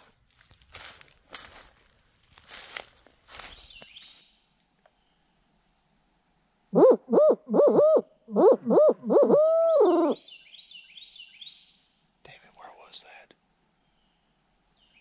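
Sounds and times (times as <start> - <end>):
owl call hoots: 6.7 - 10.3.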